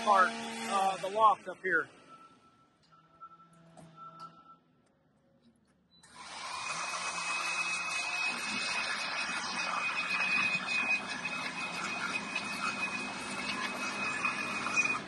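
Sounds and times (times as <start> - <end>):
power drill boring into log: 0.0 - 1.4, 6.0 - 15.0.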